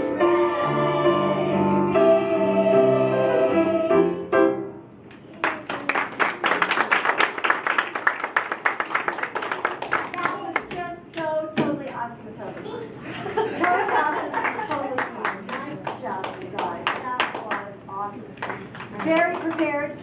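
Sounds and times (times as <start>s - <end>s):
young voices singing in harmony: 0.0s - 4.4s
applause: 5.3s - 10.7s, 13.6s - 17.7s, 18.4s - 19.8s.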